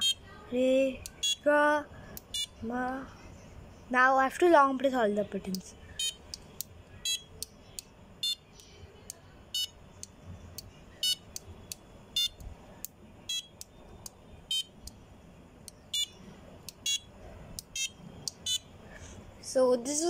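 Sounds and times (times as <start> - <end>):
buzzer high-pitched beeps: 0.0 - 0.3, 1.1 - 1.5, 2.3 - 2.6, 6.0 - 6.3, 7.0 - 7.4, 8.2 - 8.5, 9.5 - 9.8, 11.0 - 11.4, 12.1 - 12.4, 13.3 - 13.6, 14.5 - 14.8, 15.9 - 17.1, 17.7 - 18.7.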